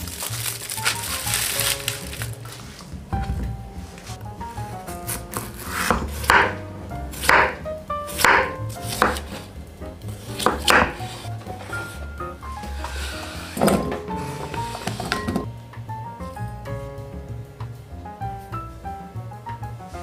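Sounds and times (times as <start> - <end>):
soft background music: 0.0 - 20.0
knife chopping on wooden board: 5.1 - 6.6, 7.2 - 9.5, 10.2 - 11.2.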